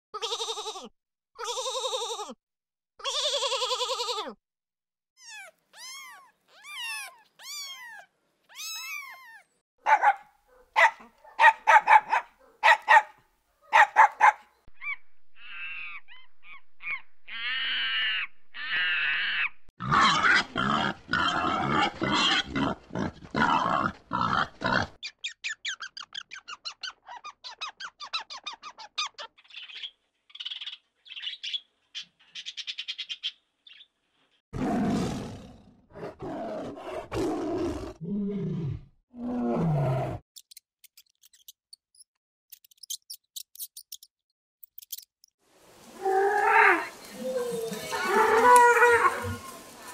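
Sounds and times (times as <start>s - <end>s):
kitten mewing: 5.2s - 9.4s
short high animal calls: 14.8s - 19.6s
pigs grunting and squealing: 17.3s - 25.0s
tiger roaring: 19.8s - 25.0s, 34.6s - 40.2s.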